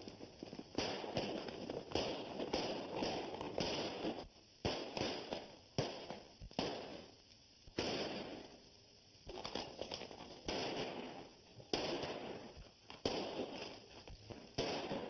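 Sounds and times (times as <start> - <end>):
gunshots with long tail: 0.7 - 7.0, 7.8 - 8.4, 10.4 - 13.7, 14.6 - 15.0.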